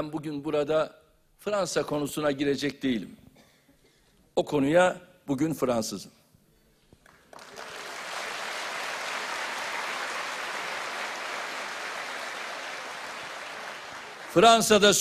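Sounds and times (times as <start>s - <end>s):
audience applause: 7.0s - 15.0s.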